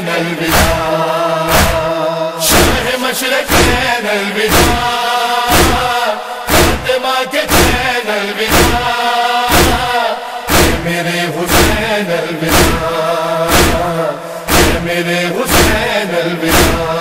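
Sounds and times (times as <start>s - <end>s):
voices singing a lament: 0.0s - 17.0s
chest-beating strikes: 1.5s - 2.9s, 3.5s - 3.8s, 4.5s - 4.9s, 5.5s - 6.9s, 7.5s - 7.9s, 8.5s - 8.9s, 9.5s - 10.9s, 11.5s - 11.8s, 12.5s - 12.9s, 13.5s - 14.9s, 15.5s - 15.8s, 16.5s - 16.9s.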